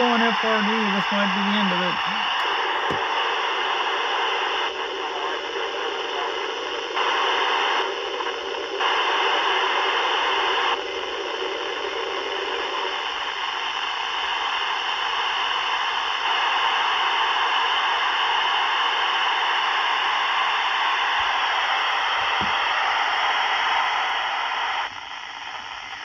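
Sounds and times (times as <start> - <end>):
radio static hiss: 0.0 - 26.0.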